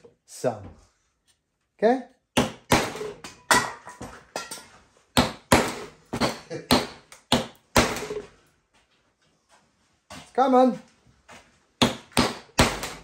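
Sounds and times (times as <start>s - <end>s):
hammer striking leather: 2.4s - 3.2s, 5.2s - 8.3s, 11.8s - 13.0s.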